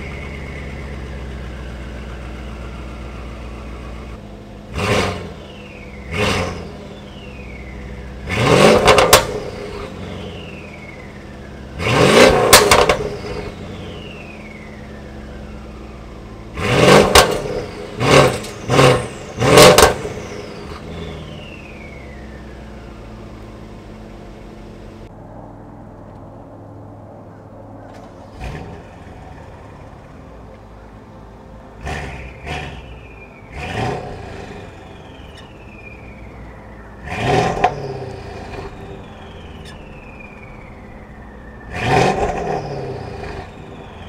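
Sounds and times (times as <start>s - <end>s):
car engine idling: 0.0s - 44.0s
car engine revving: 0.0s - 44.0s
exhaust pops: 8.2s - 10.8s, 11.8s - 14.6s, 16.6s - 25.1s, 33.6s - 40.9s
falling turbo whistle: 32.1s - 44.0s.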